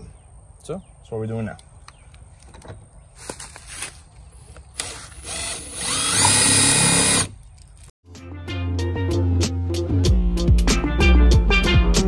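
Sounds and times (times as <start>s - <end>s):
cordless drill whining: 4.5s - 7.4s.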